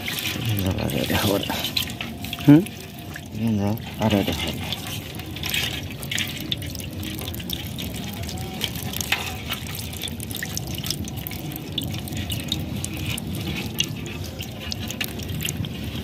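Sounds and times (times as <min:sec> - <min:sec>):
low steady rumble: 0:00.0 - 0:16.0
water dripping and splashing: 0:00.0 - 0:16.0.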